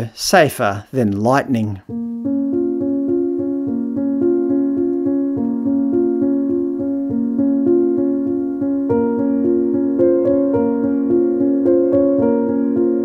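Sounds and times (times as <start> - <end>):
keyboard playing repeated chords: 1.8 - 13.0.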